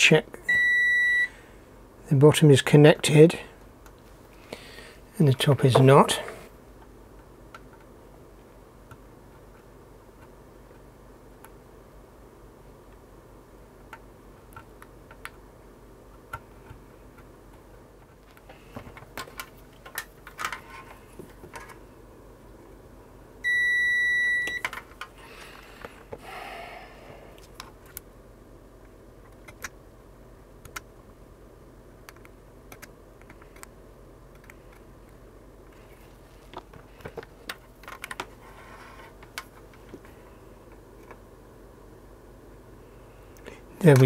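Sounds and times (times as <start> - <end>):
multimeter continuity beep: 0.5 - 1.3, 23.4 - 24.7.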